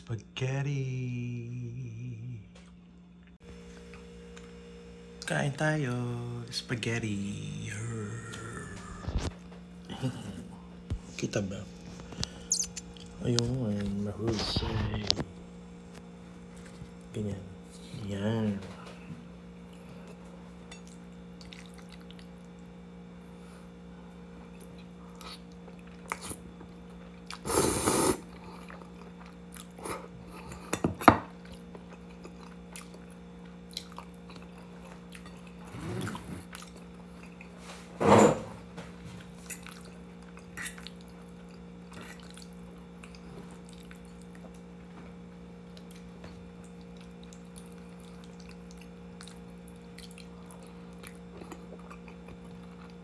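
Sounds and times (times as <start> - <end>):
steady low hum: 0.0 - 53.0
chewing: 19.5 - 22.8, 24.3 - 27.5, 28.2 - 37.7, 39.1 - 53.0.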